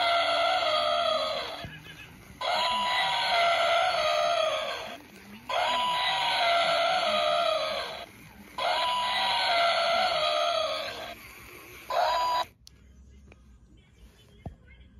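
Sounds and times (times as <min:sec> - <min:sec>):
toy elephant trumpeting call: 0:00.0 - 0:01.6, 0:02.4 - 0:11.2, 0:11.9 - 0:12.5.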